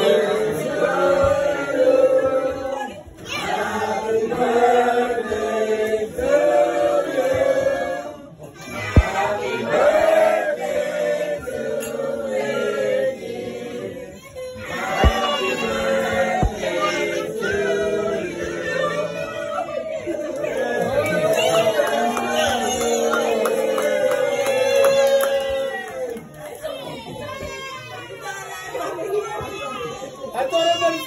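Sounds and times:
group singing birthday song: 0.0 - 24.8
sharp tap: 15.0 - 15.2.

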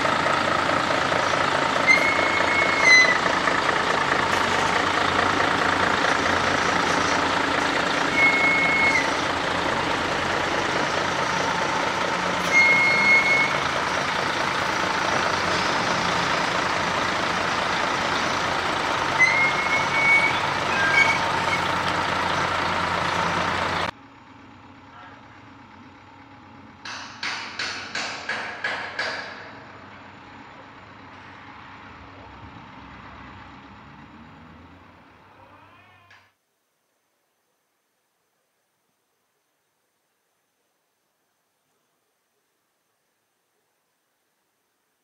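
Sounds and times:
diesel truck engine running: 0.0 - 35.5.

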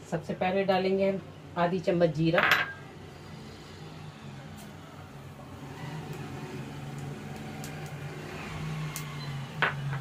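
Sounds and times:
seeds sizzling in hot oil: 5.5 - 9.6.

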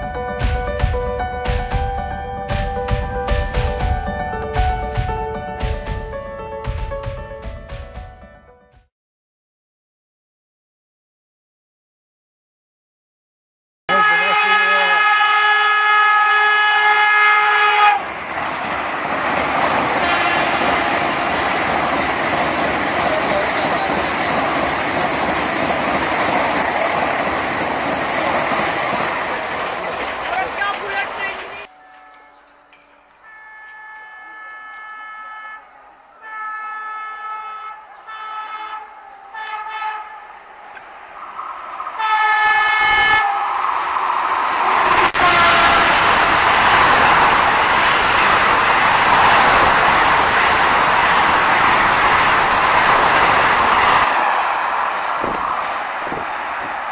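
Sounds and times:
train running past on rails: 0.0 - 8.3, 14.9 - 56.9
train horn blast: 13.9 - 18.1, 20.0 - 21.1, 31.2 - 40.5, 42.0 - 43.5, 45.0 - 46.3.

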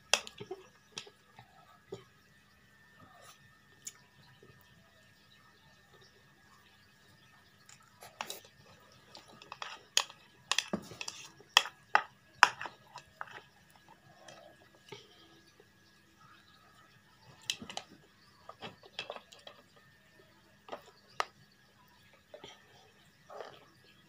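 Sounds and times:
chewing: 7.6 - 15.7, 22.1 - 24.0
slurping: 22.3 - 23.7.

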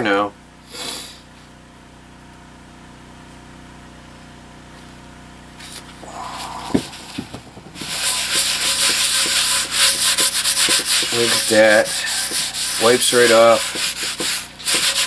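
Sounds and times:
room hum: 5.6 - 15.0
knock: 6.6 - 8.0
paper towel rubbing a pan: 7.8 - 15.0.

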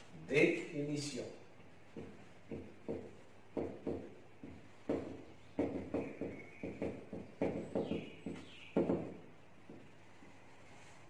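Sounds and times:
marker tapping on whiteboard: 1.8 - 10.1.

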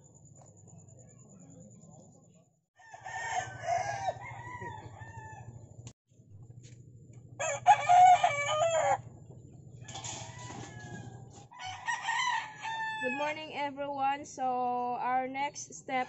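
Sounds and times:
rooster crowing: 2.8 - 5.7, 7.4 - 9.1, 9.8 - 13.4.

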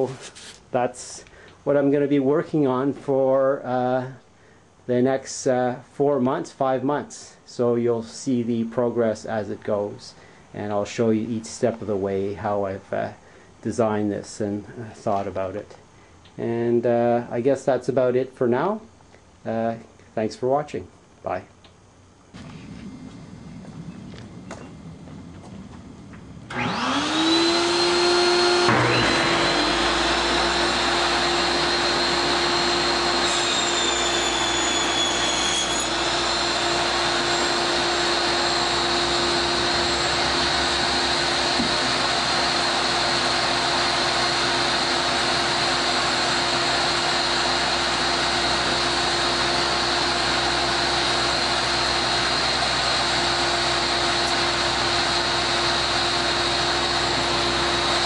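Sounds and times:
electric motor whining: 22.4 - 58.0.

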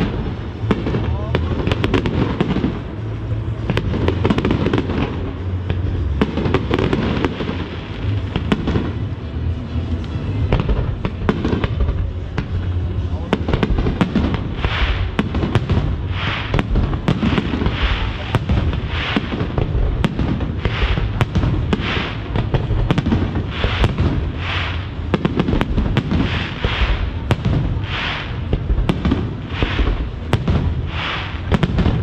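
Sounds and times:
crackling firework stars: 0.0 - 32.0
fireworks shells bursting: 13.5 - 32.0.

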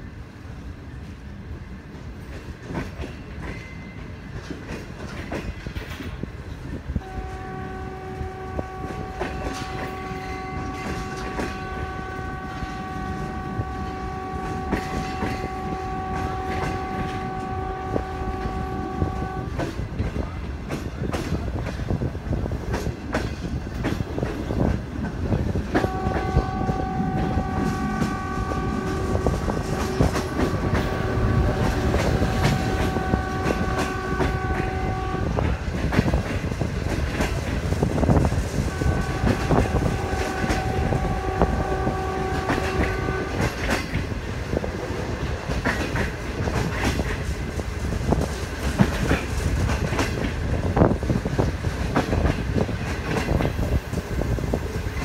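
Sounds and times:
train wheels clattering on rails: 0.0 - 55.0
train horn blasts: 7.0 - 20.3, 25.7 - 35.7, 38.6 - 44.0.

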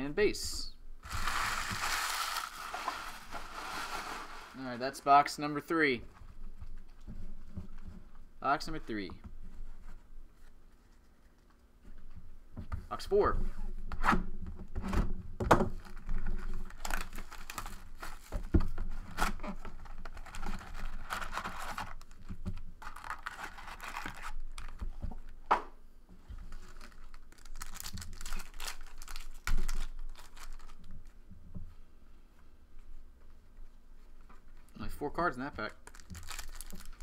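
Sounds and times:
foil packs crinkling and tearing: 1.1 - 4.7, 15.8 - 18.3, 19.0 - 24.8, 26.4 - 31.1, 35.6 - 37.0.

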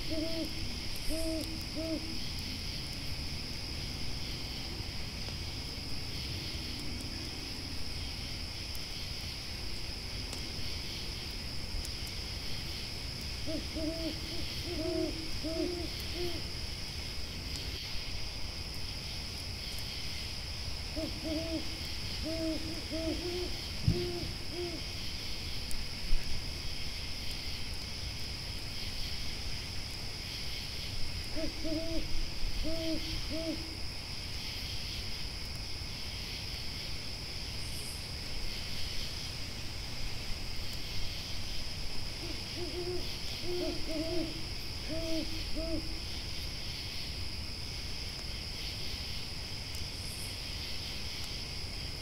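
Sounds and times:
owl hooting: 0.0 - 2.2, 13.4 - 16.5, 21.0 - 24.8, 31.3 - 33.8, 42.2 - 46.0
campfire crackling: 0.0 - 31.3, 33.7 - 42.5, 44.3 - 52.0.

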